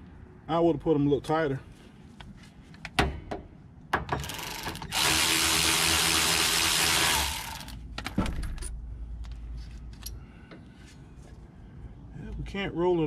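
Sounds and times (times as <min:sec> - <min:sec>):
cordless ratchet whirring: 0:04.2 - 0:07.8.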